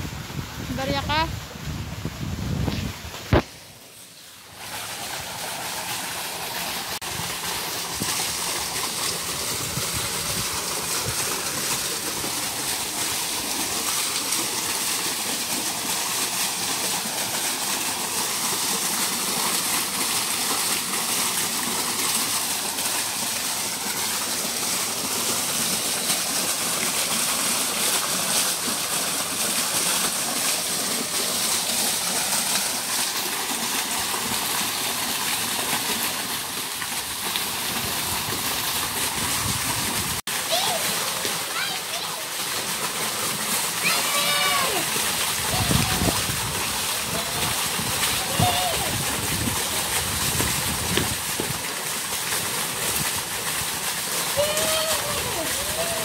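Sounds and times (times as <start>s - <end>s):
fountain jet splashing into water: 3.2s - 56.0s.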